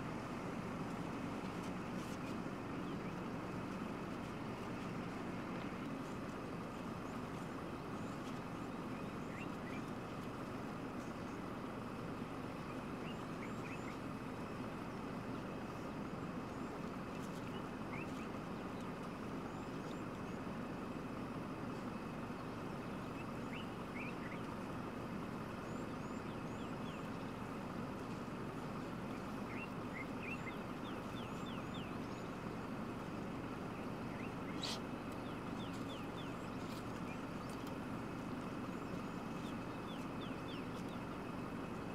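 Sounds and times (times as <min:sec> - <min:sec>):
vehicle engine idling: 0:00.0 - 0:41.9
wild dogs chirping: 0:28.3 - 0:41.9.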